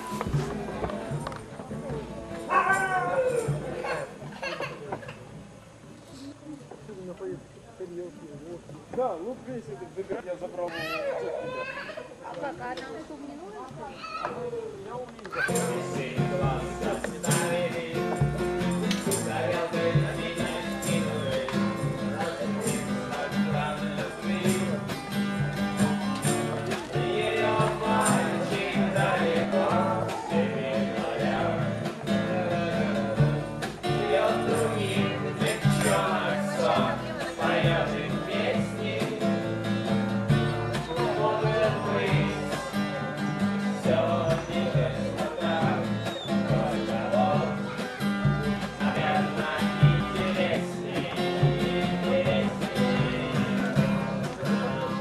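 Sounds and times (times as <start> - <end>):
plucked guitar: 0.0 - 4.3, 15.4 - 55.0
person singing: 15.4 - 25.2, 25.8 - 39.6.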